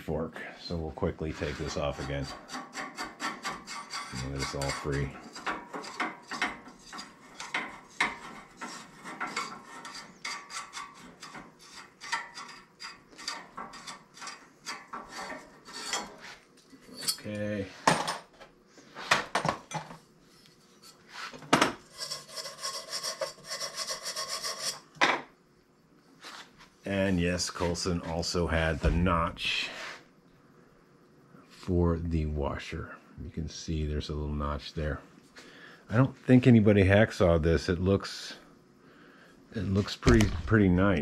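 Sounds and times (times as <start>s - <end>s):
metal scraping and rubbing: 1.0s - 17.2s, 20.3s - 25.0s.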